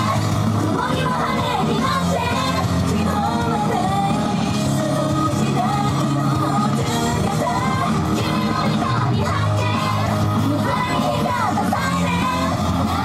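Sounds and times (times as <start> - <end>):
pop-rock backing track: 0.0 - 13.0
voices singing: 0.0 - 13.0.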